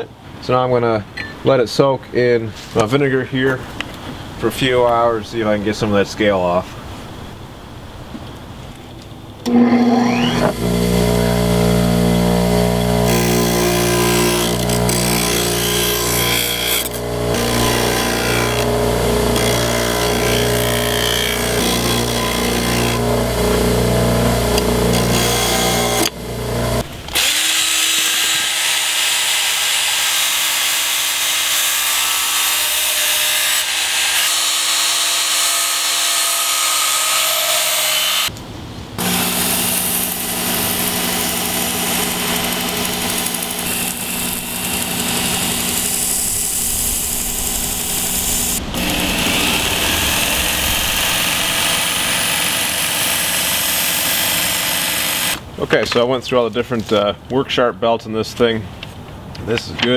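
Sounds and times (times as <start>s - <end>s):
bench grinder motor hum: 9.4s - 30.4s, 39.0s - 55.4s
belt sharpener grinding whine: 9.4s - 38.3s, 39.0s - 55.4s.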